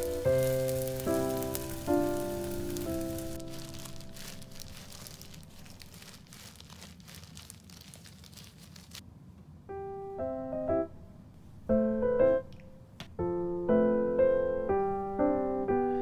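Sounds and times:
soft piano notes: 0:00.0 - 0:07.2, 0:09.7 - 0:16.0
food frying in oil: 0:00.0 - 0:08.0.

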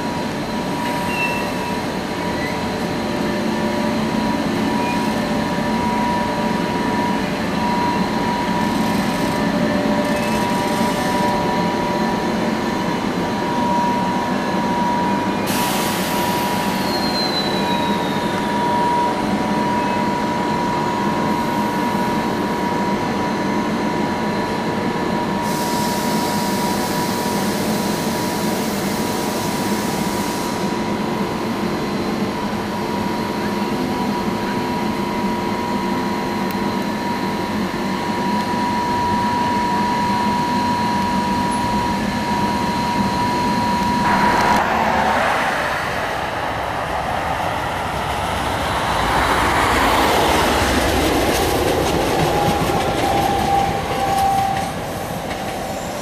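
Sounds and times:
short falling squeal: 0:00.8 - 0:02.7, 0:13.6 - 0:20.2
high electrical whine: 0:41.6 - 0:47.1
low hum: 0:43.6 - 0:47.4.

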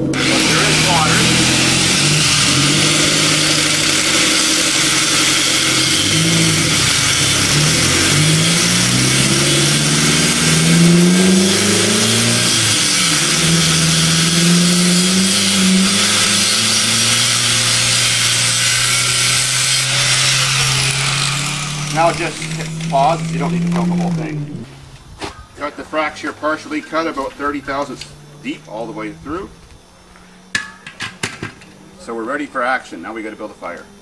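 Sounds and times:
angle grinder cutting steel: 0:00.0 - 0:24.7.

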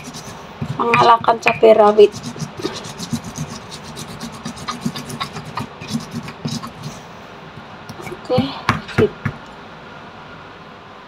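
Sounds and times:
stone pestle grinding in mortar: 0:00.0 - 0:07.0.

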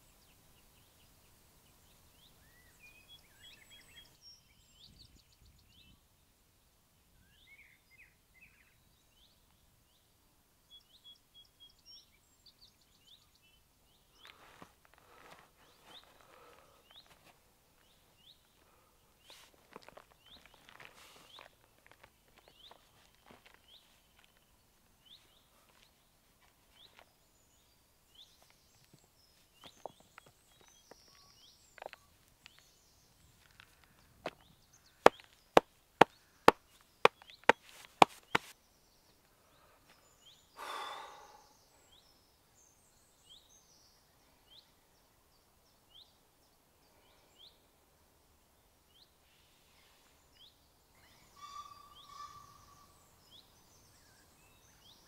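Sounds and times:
small bird calling: 0:33.4 - 0:38.5, 0:39.4 - 0:42.1, 0:49.3 - 0:55.0
sharp slaps: 0:37.1 - 0:38.5
man sighing: 0:40.6 - 0:41.5.

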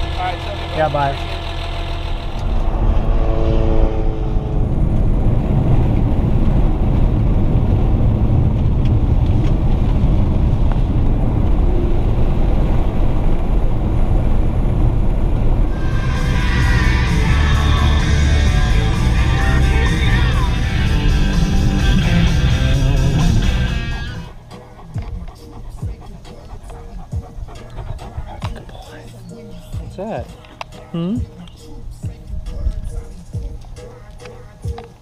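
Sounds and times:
car driving on gravel: 0:00.0 - 0:25.2
rock music with guitar: 0:15.7 - 0:26.0.

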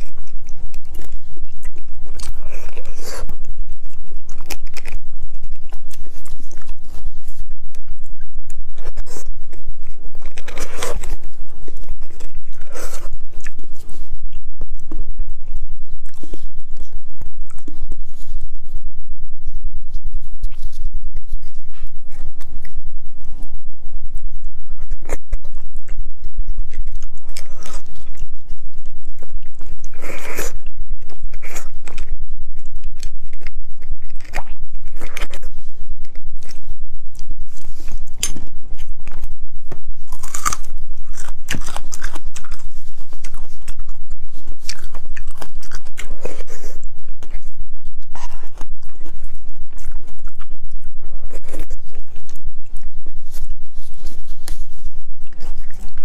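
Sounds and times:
steady low hum: 0:00.0 - 0:56.0
wet chewing and crunching: 0:00.0 - 0:56.0.

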